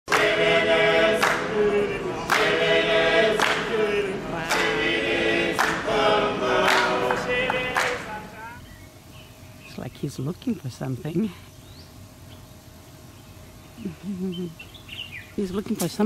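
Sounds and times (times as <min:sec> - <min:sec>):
choir singing held chords: 0:00.1 - 0:08.6.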